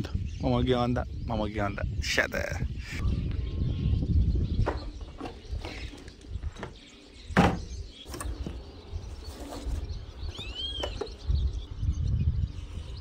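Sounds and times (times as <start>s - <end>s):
cooler set down with a thud: 4.6s - 8.6s
bird call: 9.3s - 11.3s.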